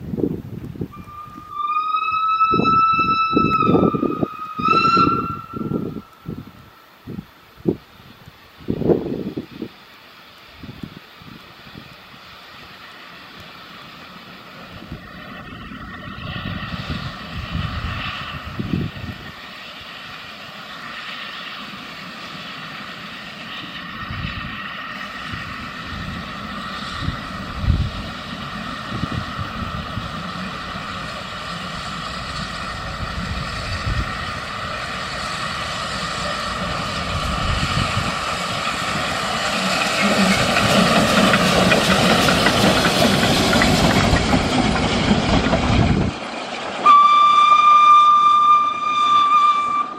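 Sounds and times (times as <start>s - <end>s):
steam locomotive running: 0.0s - 49.9s
low rumbles: 23.9s - 46.8s.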